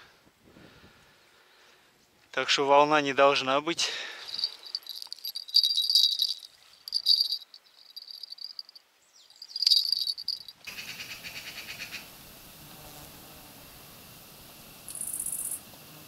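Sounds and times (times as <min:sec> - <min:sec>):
faint steady hiss: 0:00.0 - 0:16.0
insects chirping trill: 0:04.3 - 0:12.6, 0:13.6 - 0:15.7.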